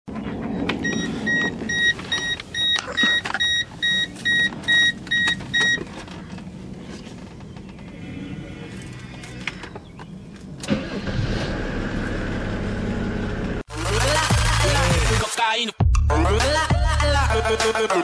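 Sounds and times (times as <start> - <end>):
dashboard warning chime beeping: 0.8 - 5.9.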